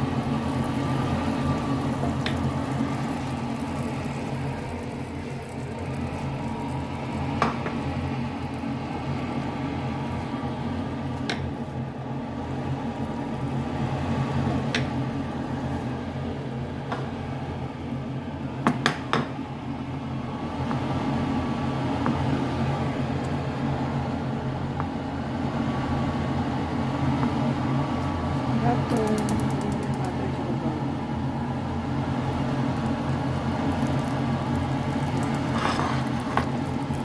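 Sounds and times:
butter sizzling in frying pan: 0.0s - 17.2s, 31.7s - 37.0s.

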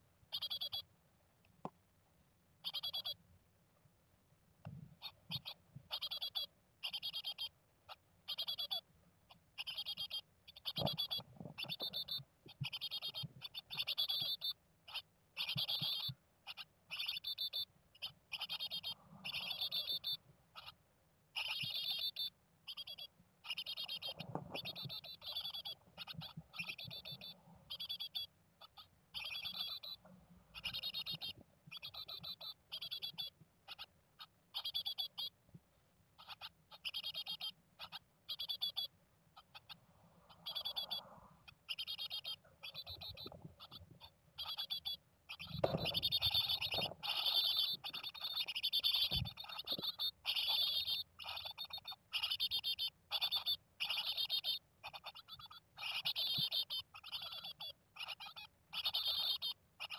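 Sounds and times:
nestlings chittering calls: 0.3s - 0.8s, 2.6s - 3.2s, 5.0s - 35.3s, 36.2s - 59.9s.

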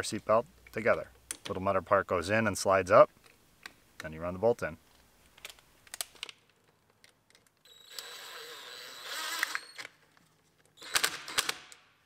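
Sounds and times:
impact wrench motor whirring: 7.7s - 10.0s, 10.8s - 11.8s.

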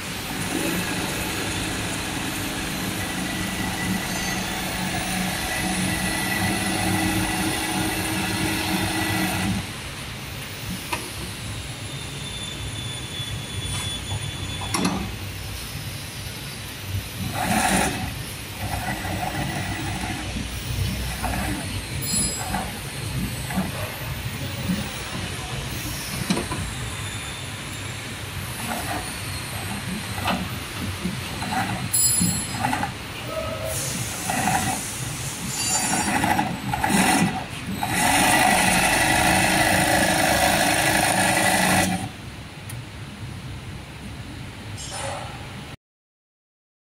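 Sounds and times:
sewing machine running: 0.1s - 9.7s, 17.2s - 23.8s, 28.6s - 33.0s, 34.0s - 34.9s, 35.7s - 42.2s.

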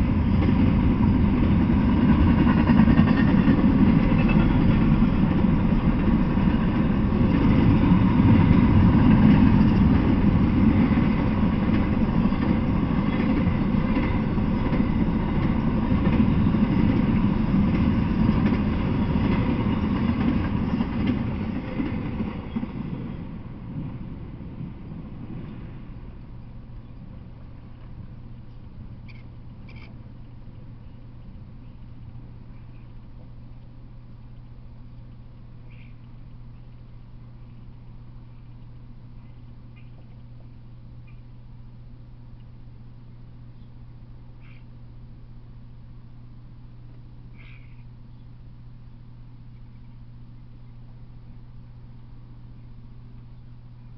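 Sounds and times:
freight train rumbling past: 0.0s - 29.0s.

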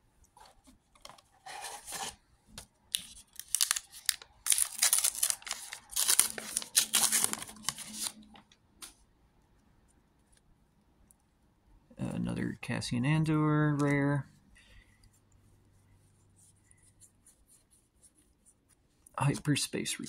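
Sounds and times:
wrapper ripping and rustling: 2.9s - 8.3s.

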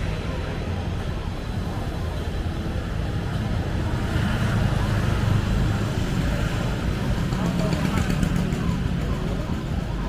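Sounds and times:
scooter engines passing: 0.0s - 10.0s
street traffic: 0.0s - 10.0s.

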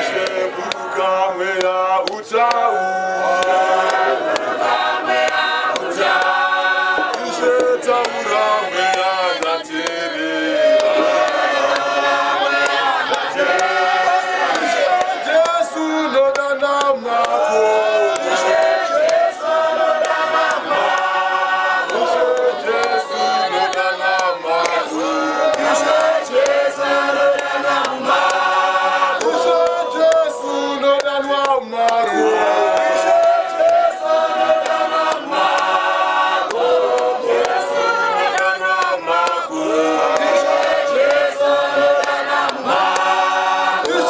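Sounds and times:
church choir singing a hymn: 0.0s - 44.0s.

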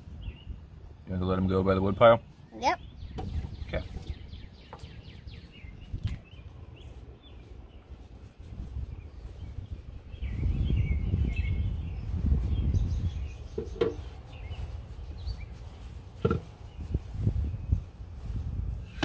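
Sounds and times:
birds chirping faintly: 0.0s - 19.0s
firewood knocking together: 16.2s - 16.5s.

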